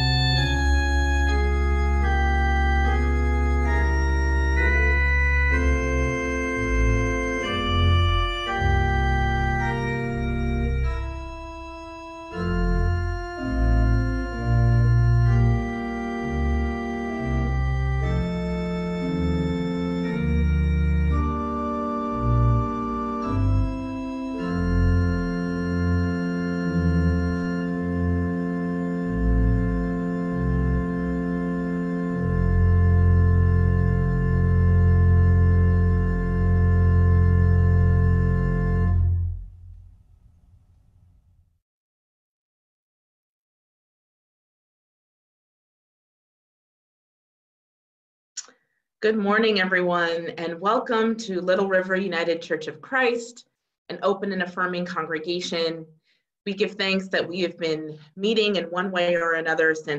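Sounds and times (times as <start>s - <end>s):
pipe organ playing chords: 0.0s - 39.5s.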